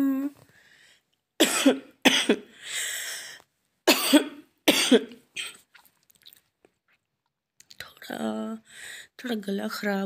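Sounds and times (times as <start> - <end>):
woman coughing: 1.4 - 2.5, 3.9 - 5.6
breathy intake of breath: 2.5 - 3.4.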